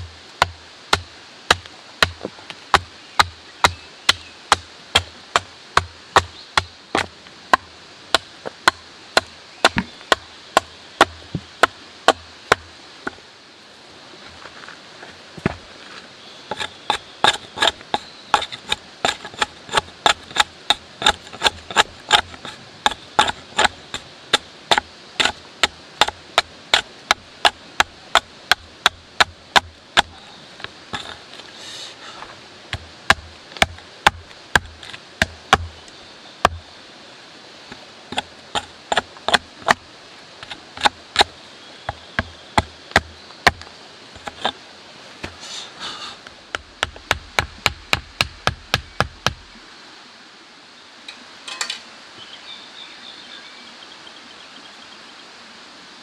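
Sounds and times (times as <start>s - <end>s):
hatchet chopping wood: 0.0s - 12.7s, 16.5s - 30.2s, 32.7s - 35.8s, 36.4s - 36.6s, 38.1s - 39.8s, 40.4s - 41.3s, 41.9s - 44.5s, 46.5s - 49.4s.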